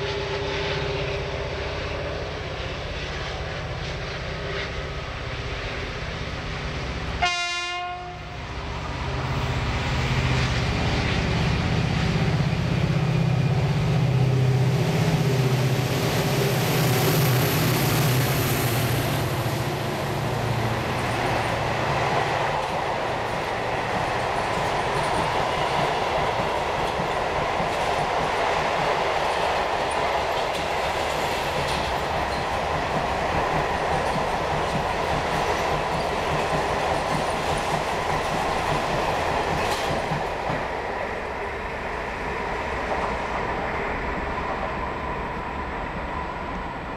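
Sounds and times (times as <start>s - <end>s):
train horn blast: 7.2s - 8.5s.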